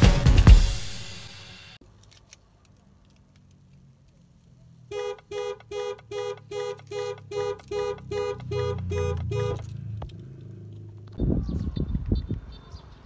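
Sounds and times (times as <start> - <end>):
car alarm beeping: 4.9 - 9.7.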